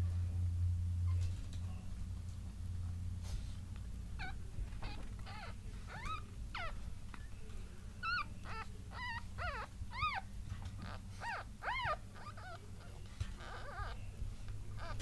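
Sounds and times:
steady low hum: 0:00.0 - 0:15.0
puppy squeaking and whimpering: 0:04.2 - 0:07.3, 0:08.0 - 0:15.0.

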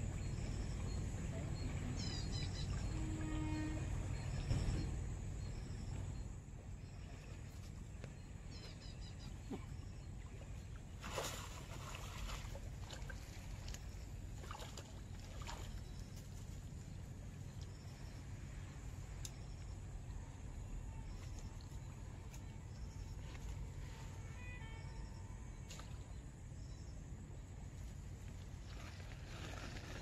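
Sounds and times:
steady low rumble: 0:00.0 - 0:03.0, 0:12.6 - 0:29.2
fish splashing in water: 0:11.0 - 0:13.7.

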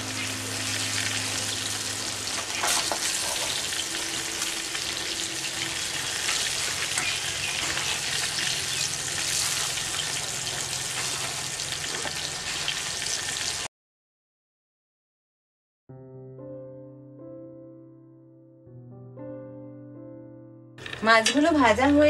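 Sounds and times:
fish sizzling in hot oil: 0:00.0 - 0:13.7
metal spatula scraping: 0:02.3 - 0:04.1, 0:05.5 - 0:12.6.

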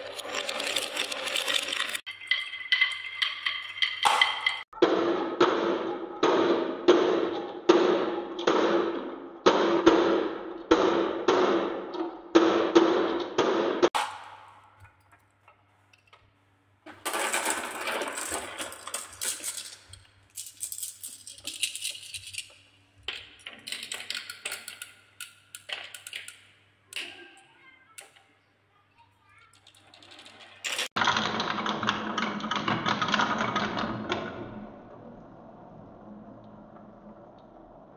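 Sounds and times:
marbles clacking into plastic truck: 0:00.0 - 0:04.7, 0:16.8 - 0:28.2, 0:29.5 - 0:34.6
marbles rattling down wooden ramp: 0:00.0 - 0:04.7, 0:16.9 - 0:27.1, 0:29.5 - 0:34.6.

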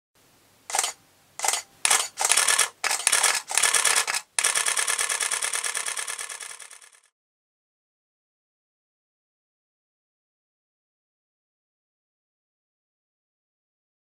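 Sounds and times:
camera shutter firing: 0:00.7 - 0:07.1.

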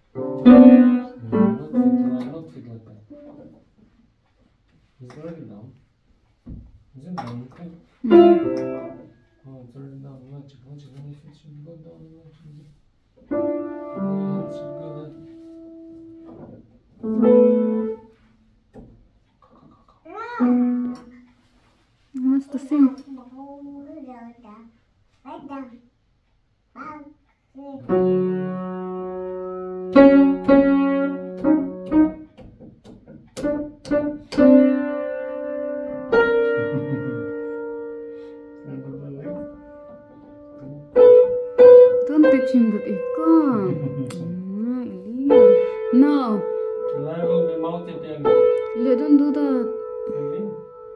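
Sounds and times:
slow piano notes ringing: 0:00.0 - 0:02.5, 0:08.1 - 0:09.5, 0:13.3 - 0:18.2, 0:27.9 - 0:32.3, 0:33.4 - 0:50.9.

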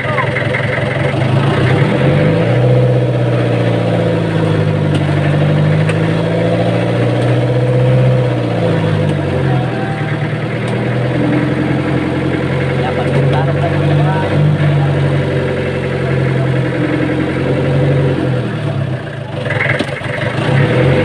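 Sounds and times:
boat engine droning: 0:00.0 - 0:21.0.

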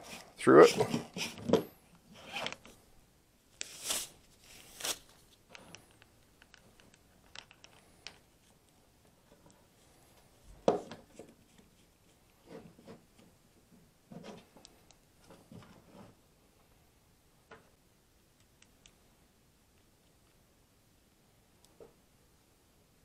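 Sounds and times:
small clicks of parts: 0:05.5 - 0:08.6.

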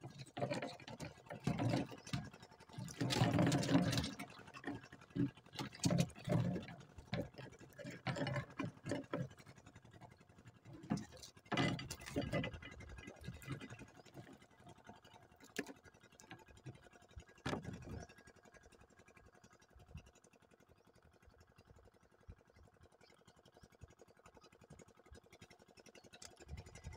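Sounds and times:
fish trap hoops rattling and knocking: 0:00.0 - 0:18.4, 0:25.2 - 0:26.9.

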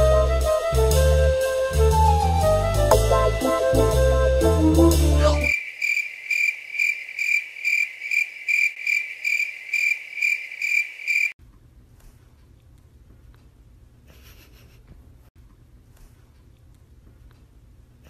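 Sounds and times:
brass and drums music: 0:00.0 - 0:05.5
cricket chirping: 0:05.4 - 0:11.4
faint room noise: 0:11.4 - 0:18.0.

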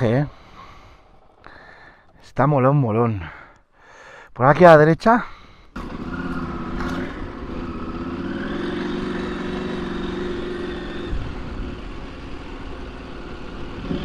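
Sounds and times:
motorcycle engine running: 0:05.8 - 0:14.0.

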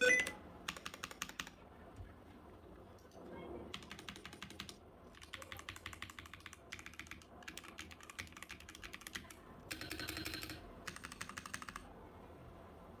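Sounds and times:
mechanical keyboard typing: 0:00.0 - 0:01.6, 0:03.7 - 0:11.9.

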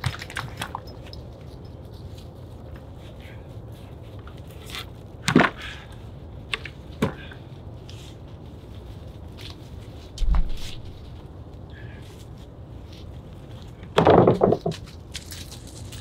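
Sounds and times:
low thump: 0:10.2 - 0:10.8
logs knocking on a cart: 0:14.0 - 0:14.9.

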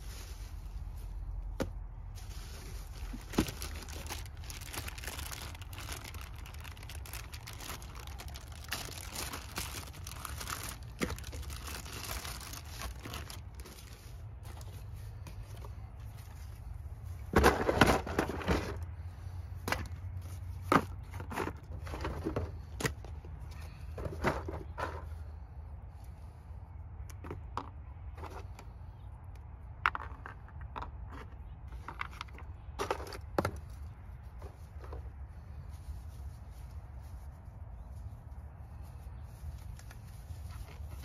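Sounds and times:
plastic parts clattering on gravel: 0:01.6 - 0:16.5, 0:17.2 - 0:25.3, 0:29.8 - 0:35.2.

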